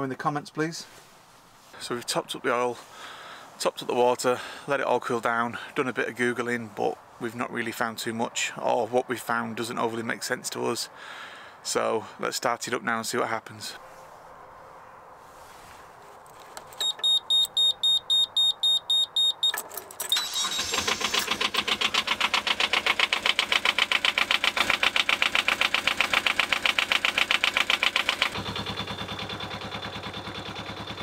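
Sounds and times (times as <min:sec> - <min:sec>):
warning buzzer beeping: 0:16.8 - 0:19.6
diesel engine starting and chugging: 0:19.7 - 0:31.0.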